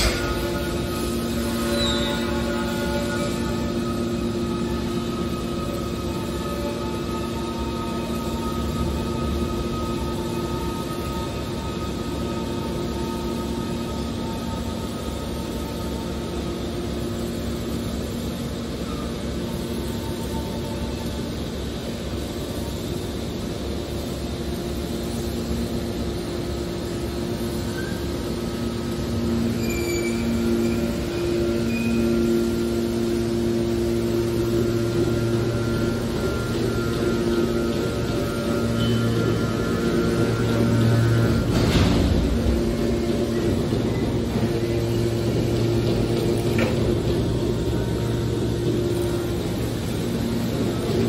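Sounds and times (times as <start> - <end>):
high-pitched squeals: 0.0 - 16.4, 29.2 - 41.9
hydraulic pump humming: 0.0 - 51.0.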